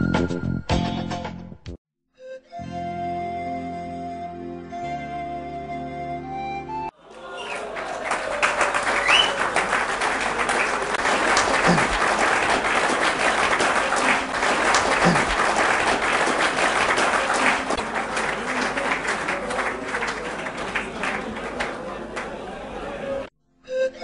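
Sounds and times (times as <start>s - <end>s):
crowd clapping: 7.0s - 23.3s.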